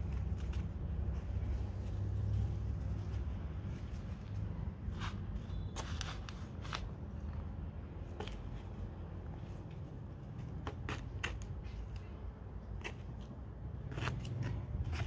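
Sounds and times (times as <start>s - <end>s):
low steady rumble: 0.0s - 15.0s
hand tool scraping potting soil: 10.4s - 12.0s, 12.6s - 15.0s.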